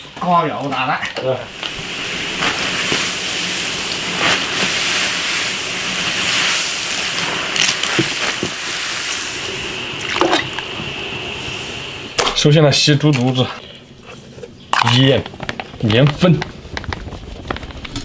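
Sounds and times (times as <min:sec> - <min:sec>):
water boiling in a wok: 0:00.0 - 0:13.0, 0:13.9 - 0:18.0
water splash: 0:01.5 - 0:10.8
water sloshing: 0:09.9 - 0:10.8.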